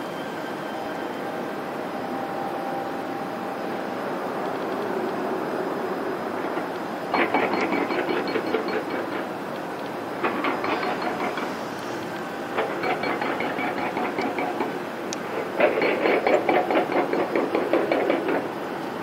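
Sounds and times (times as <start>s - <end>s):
steady rushing noise: 0.0s - 19.0s
rapid clicking and rattling: 6.5s - 11.6s, 12.6s - 18.6s.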